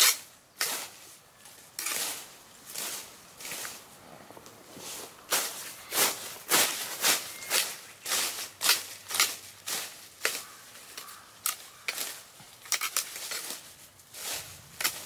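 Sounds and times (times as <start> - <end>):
sickle slicing through weeds: 1.8 - 3.8, 5.3 - 15.0.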